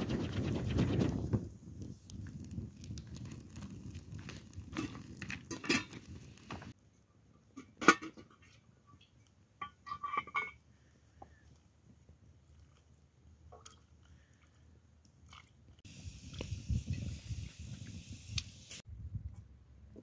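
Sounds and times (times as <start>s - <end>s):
low rumble of flame: 0.0s - 6.8s, 15.8s - 19.4s
wood fire crackling: 0.0s - 6.8s, 11.3s - 18.8s
metal pot and dishes clinking: 7.6s - 8.6s, 9.6s - 10.6s.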